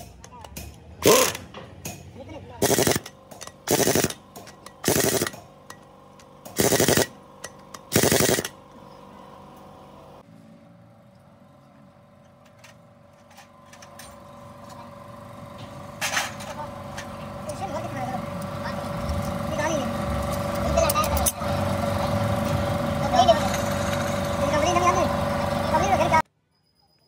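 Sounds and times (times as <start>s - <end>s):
pneumatic impact wrench hammering: 0.0s - 8.6s
steady background hum: 0.0s - 10.2s, 10.9s - 26.2s.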